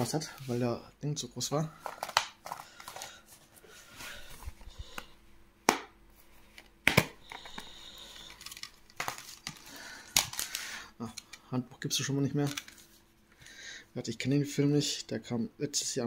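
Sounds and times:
packaging crinkling and tearing: 7.3 - 10.8.

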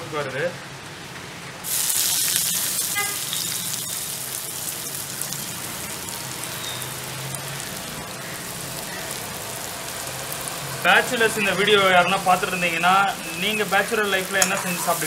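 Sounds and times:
onion sizzling in hot oil: 1.6 - 15.0.

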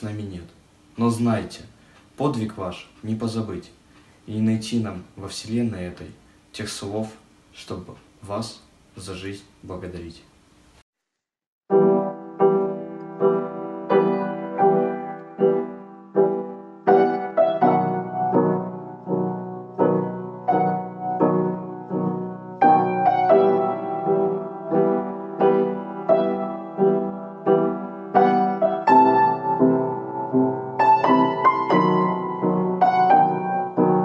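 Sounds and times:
slow gentle piano melody: 11.7 - 34.0.

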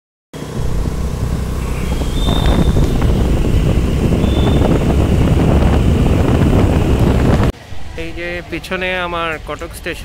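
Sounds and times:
wind buffeting microphone: 0.4 - 8.0
motorbike engine and tyre noise: 0.4 - 8.4.

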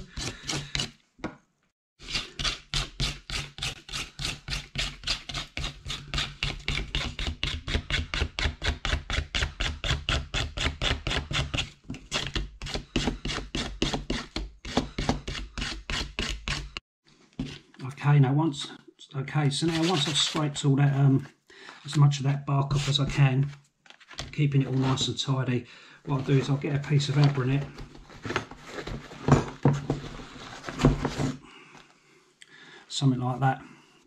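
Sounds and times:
knife scraping bark: 0.0 - 1.0, 2.0 - 16.8.

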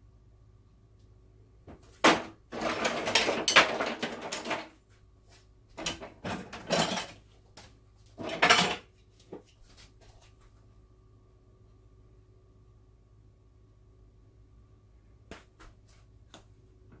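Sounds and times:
kitchenware clattering: 2.0 - 4.8, 5.8 - 7.3, 8.2 - 8.9.

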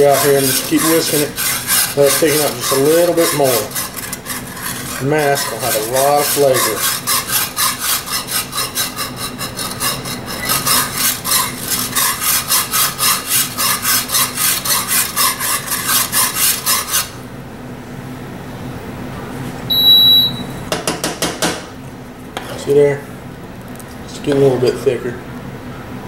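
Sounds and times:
whisk scraping a skillet: 0.0 - 17.2.

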